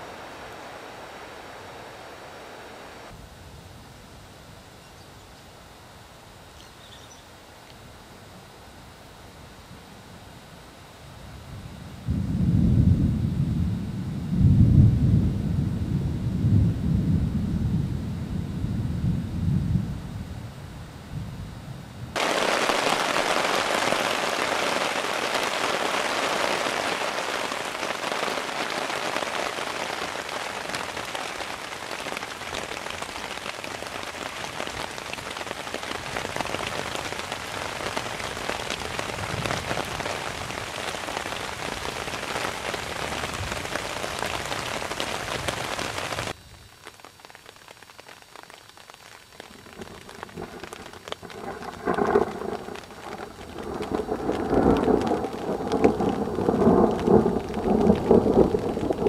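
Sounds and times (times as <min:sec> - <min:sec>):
heavy rain: 0:00.0 - 0:03.3, 0:22.1 - 0:59.0.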